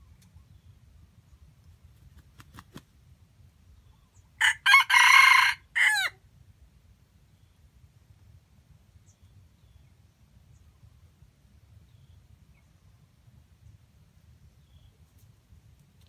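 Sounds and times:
rooster crowing: 4.4s - 6.2s.

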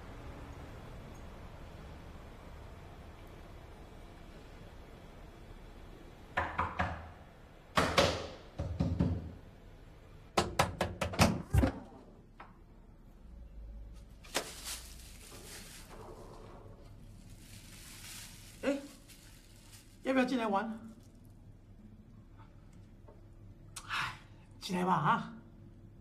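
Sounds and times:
knocking on door: 6.4s - 7.1s, 7.8s - 9.4s, 10.4s - 11.5s.

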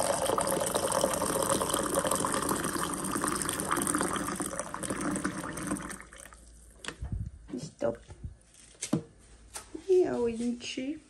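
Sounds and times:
hot water pouring into a mug: 0.0s - 6.7s.

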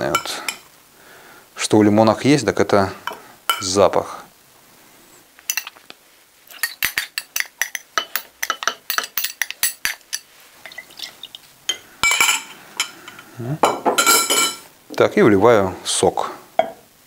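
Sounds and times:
metal spoon clinking on glass bowl: 5.5s - 5.7s, 6.5s - 11.1s, 11.7s - 14.6s.

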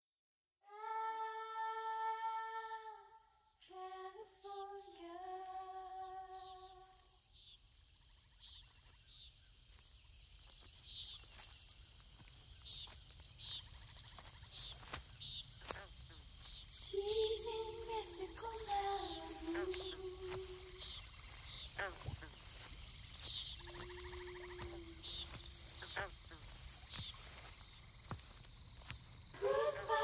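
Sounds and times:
person humming held notes: 16.8s - 21.0s, 29.4s - 30.0s.

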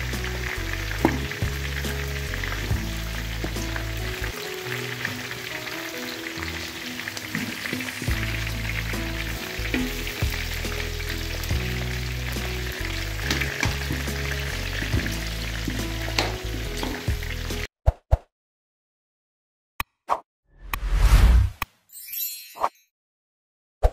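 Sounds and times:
meat deep-frying sizzle: 0.0s - 17.7s.

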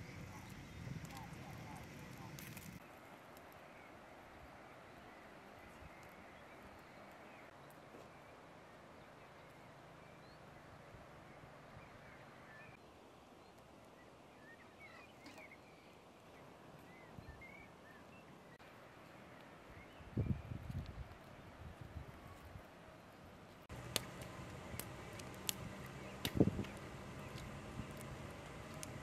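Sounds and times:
distant birds chirping: 0.0s - 3.0s, 22.9s - 29.0s.

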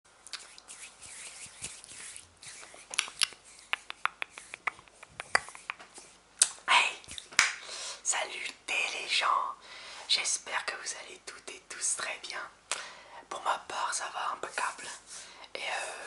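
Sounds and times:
fingers rubbing and scratching microphone: 0.4s - 6.2s.

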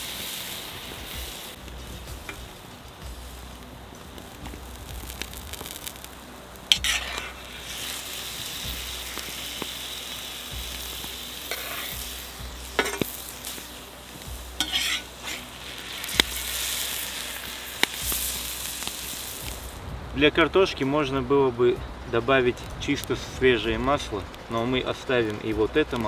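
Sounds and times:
meat sizzling in hot oil: 0.0s - 19.8s
metal ladle scraping a pan: 6.7s - 8.1s, 11.4s - 13.6s, 14.6s - 18.0s.

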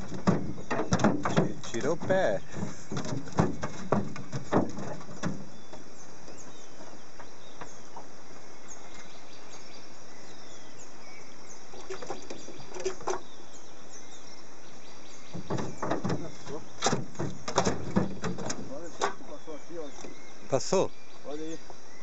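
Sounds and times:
short knocks: 0.0s - 8.1s, 15.3s - 19.4s.

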